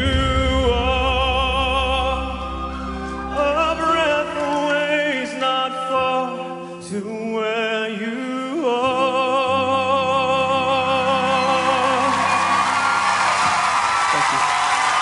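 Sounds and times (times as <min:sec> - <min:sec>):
backing music: 0:00.0 - 0:07.8, 0:08.6 - 0:15.0
man singing high note with vibrato: 0:00.0 - 0:12.7.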